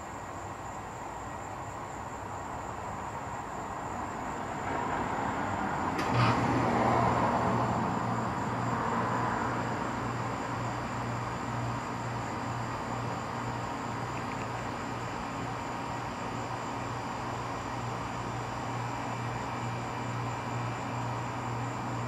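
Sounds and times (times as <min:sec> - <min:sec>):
steady low hum: 0:00.0 - 0:22.0
vehicle passing: 0:04.6 - 0:10.4.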